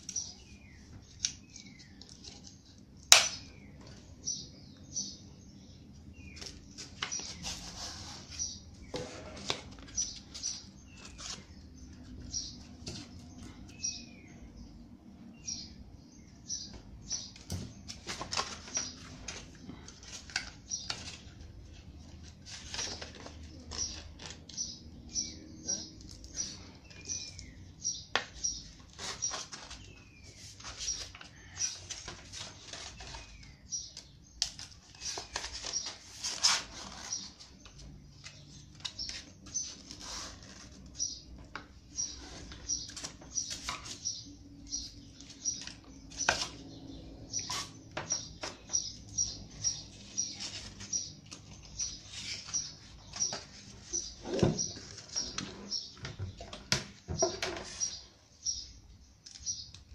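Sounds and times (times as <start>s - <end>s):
paper rustling: 6.3s - 13.5s, 17.8s - 24.6s, 34.4s - 41.0s, 49.8s - 55.6s
bird chirping: 9.8s - 19.9s, 22.0s - 59.9s.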